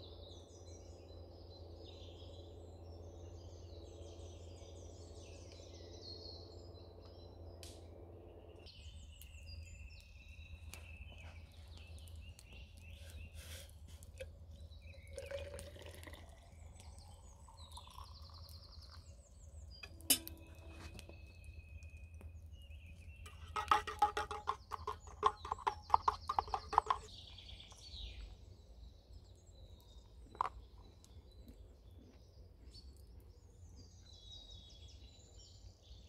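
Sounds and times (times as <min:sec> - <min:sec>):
birds chirping: 0:00.0 - 0:36.0
water pouring into tumbler: 0:12.9 - 0:19.2, 0:23.3 - 0:27.1.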